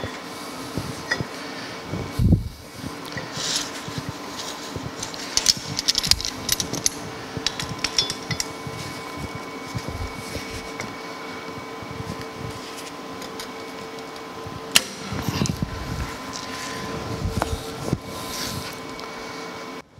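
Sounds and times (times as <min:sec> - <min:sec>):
steady hum: 0:00.0 - 0:19.9
steel clinking and clicking: 0:05.0 - 0:08.7.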